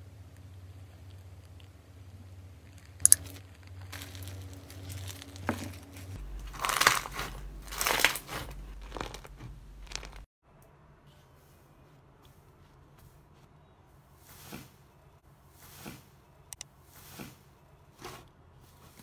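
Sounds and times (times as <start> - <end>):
slime crackling and crunching: 2.6 - 10.3.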